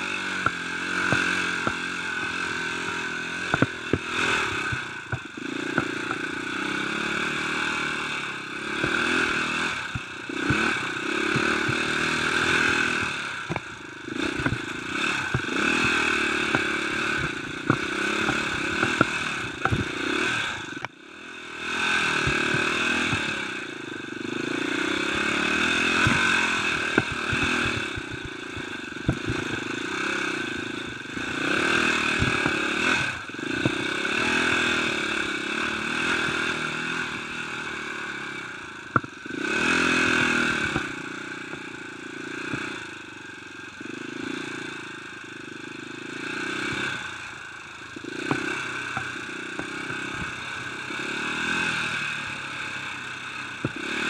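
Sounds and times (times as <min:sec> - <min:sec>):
dirt bike engine revving: 0:00.0 - 0:54.0
bike knocks and rattles: 0:00.2 - 0:06.4, 0:08.8 - 0:21.0, 0:22.1 - 0:23.5, 0:25.2 - 0:35.4, 0:38.8 - 0:39.7, 0:46.6 - 0:47.0, 0:47.9 - 0:50.5.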